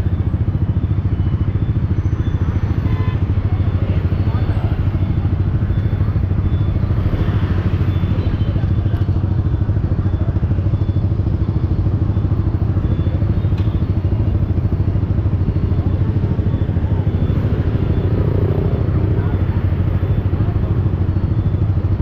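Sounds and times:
motorcycle engine running: 0.0s - 22.0s.

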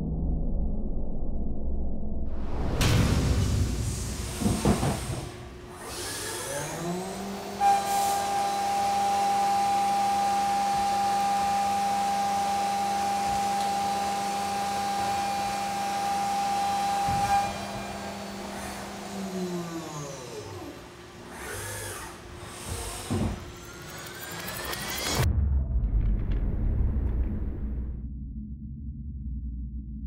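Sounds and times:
sound effect hit: 2.3s - 5.5s, 25.0s - 28.6s
milling machine cutting metal: 4.2s - 25.2s.

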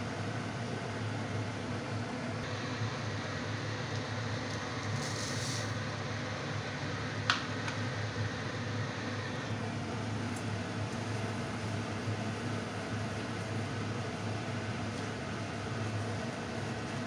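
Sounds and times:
kitchen hum and hiss: 0.0s - 17.0s
sugar pouring hiss: 3.9s - 5.9s.

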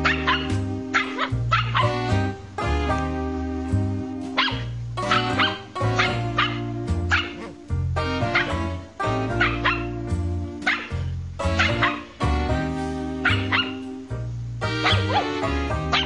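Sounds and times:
puppy barking and yipping: 0.0s - 2.1s, 4.4s - 7.6s, 8.2s - 10.0s, 10.6s - 12.2s, 13.2s - 13.9s, 14.7s - 16.0s
background music with bass line: 0.0s - 16.0s.

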